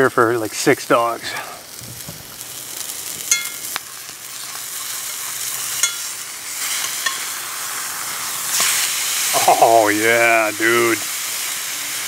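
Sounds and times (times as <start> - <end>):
burger patty sizzling in a skillet: 0.0 - 12.0
metal fork clinking on pan: 3.3 - 3.6, 5.8 - 6.1, 6.8 - 7.2.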